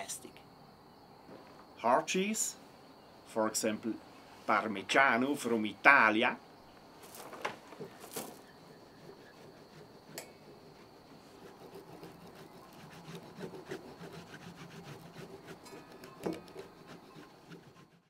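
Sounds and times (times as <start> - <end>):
saw rasping on cheese: 8.6 - 18.0.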